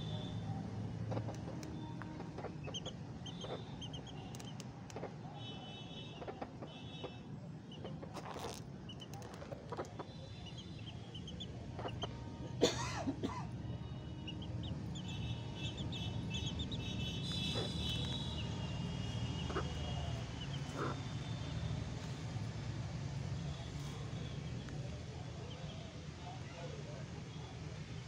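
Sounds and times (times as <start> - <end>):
chicks peeping: 1.1 - 5.1, 8.9 - 12.4, 14.2 - 21.2
low chick calls: 14.2 - 22.2.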